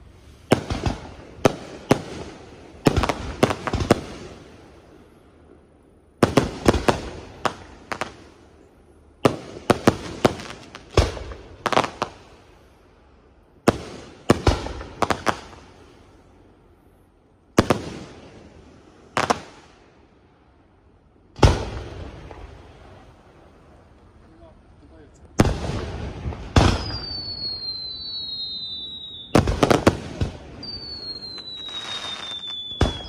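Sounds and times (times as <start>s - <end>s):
firework shells bursting: 25.3s - 33.0s.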